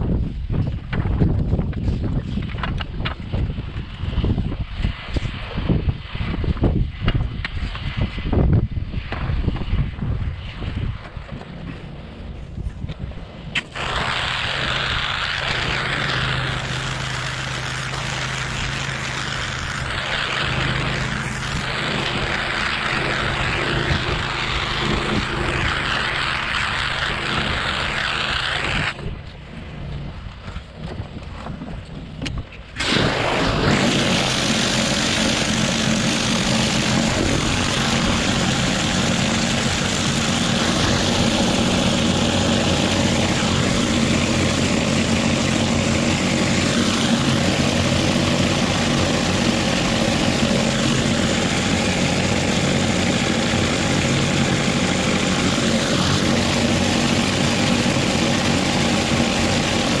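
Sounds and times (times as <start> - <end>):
mechanical hum: 0.0 - 60.0
pressure washer spraying water: 13.6 - 29.0, 32.8 - 60.0.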